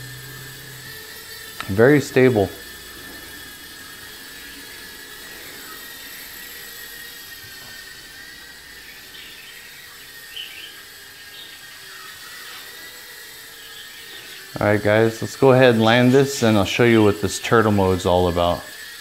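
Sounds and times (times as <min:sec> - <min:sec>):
quadcopter motors whining: 0:00.0 - 0:19.0.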